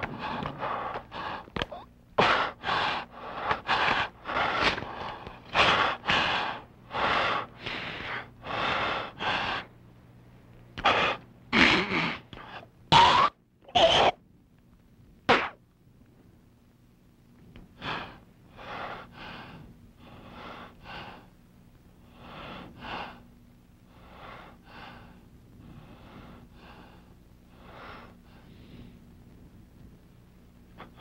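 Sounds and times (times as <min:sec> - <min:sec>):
man breathing hard: 0:00.0 - 0:09.7, 0:10.8 - 0:12.8, 0:17.7 - 0:21.4, 0:22.0 - 0:23.3, 0:23.9 - 0:29.1, 0:30.8 - 0:31.0.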